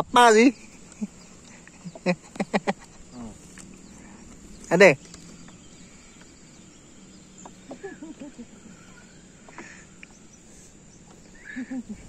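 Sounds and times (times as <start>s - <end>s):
high insect drone: 0.0s - 12.0s.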